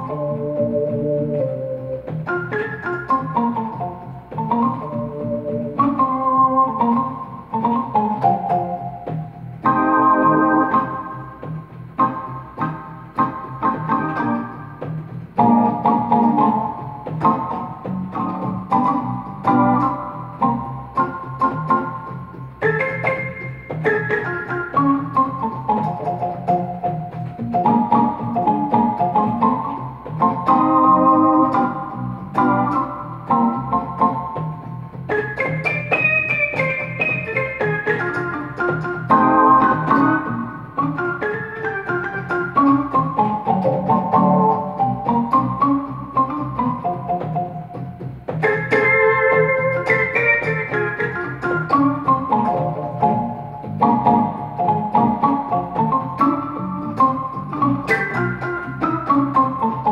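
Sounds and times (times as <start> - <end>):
electronic keyboard organ chords: 0.0 - 59.9
low bass pattern: 0.0 - 59.9.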